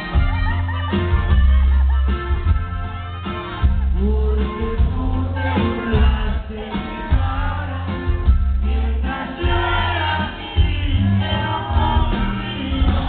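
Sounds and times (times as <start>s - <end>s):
button accordion: 0.0s - 4.6s
bass: 0.0s - 13.0s
drums: 0.0s - 13.0s
twelve-string guitar: 0.0s - 13.0s
men singing together: 3.8s - 13.0s.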